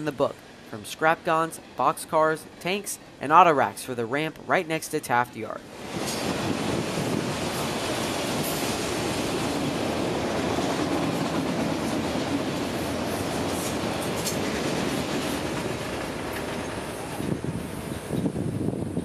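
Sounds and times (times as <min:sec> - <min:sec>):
train wheels on rails: 0:05.7 - 0:19.0.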